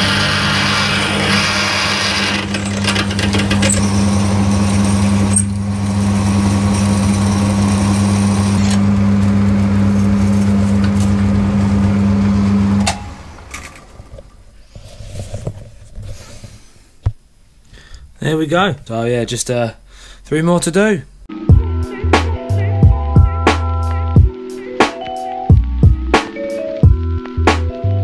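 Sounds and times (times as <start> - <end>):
drill cutting metal: 0.0 - 8.8
lathe motor hum: 0.0 - 14.2.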